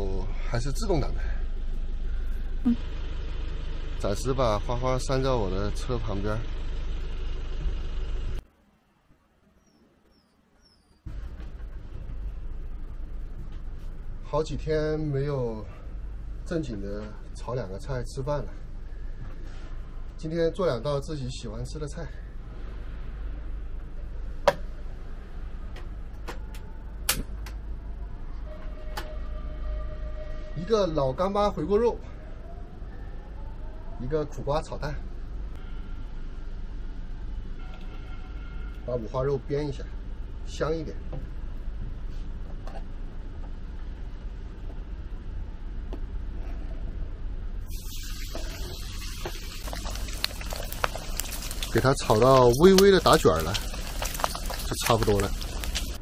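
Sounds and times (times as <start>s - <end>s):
meat sizzling in a wok: 47.7s - 56.0s.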